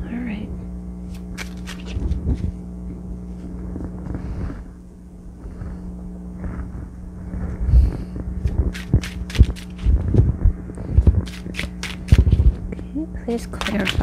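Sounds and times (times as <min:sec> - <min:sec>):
steady low hum: 0:00.0 - 0:14.0
playing cards knocking and rustling: 0:01.1 - 0:02.6, 0:13.6 - 0:14.0.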